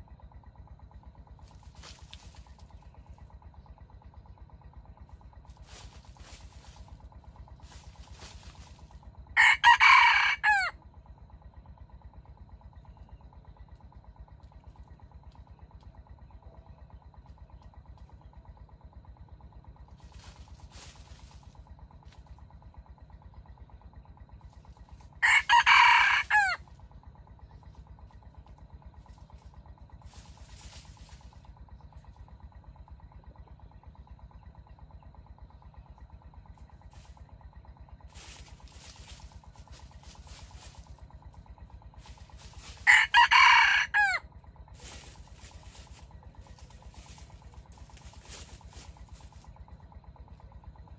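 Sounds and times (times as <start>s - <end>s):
rooster crowing: 9.4s - 10.8s, 25.2s - 26.6s, 42.6s - 44.3s.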